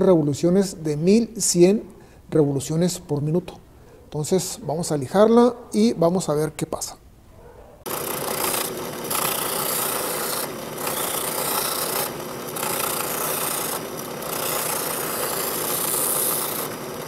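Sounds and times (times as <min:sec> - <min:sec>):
drill press running: 0:07.9 - 0:17.0
sanding drum rasping wood: 0:07.9 - 0:17.0.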